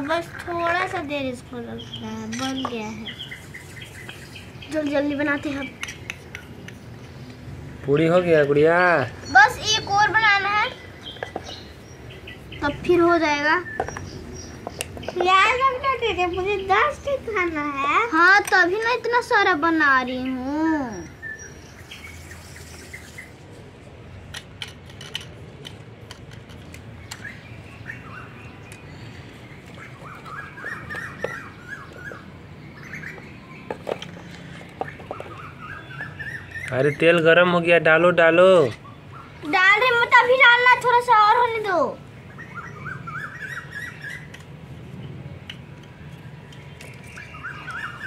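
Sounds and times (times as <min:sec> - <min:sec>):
birds chirping faintly: 0:00.0 - 0:48.0
toy kitchenware clicking: 0:02.2 - 0:02.8, 0:18.2 - 0:19.0, 0:24.3 - 0:27.2
bird warbling call: 0:27.1 - 0:33.7, 0:34.8 - 0:37.1, 0:42.3 - 0:44.4, 0:46.8 - 0:48.0.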